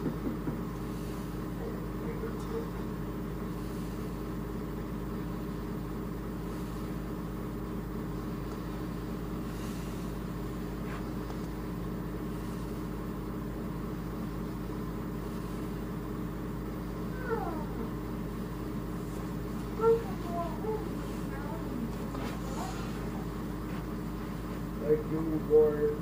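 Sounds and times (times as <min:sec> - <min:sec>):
low electrical hum and buzz: 0:00.0 - 0:26.0.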